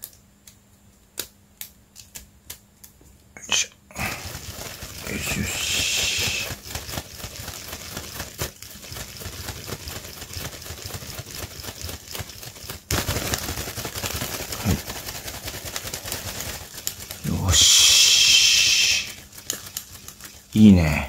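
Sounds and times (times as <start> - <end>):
plastic wings rustling: 3.9 - 21.0
frame and crank ticking: 4.2 - 20.6.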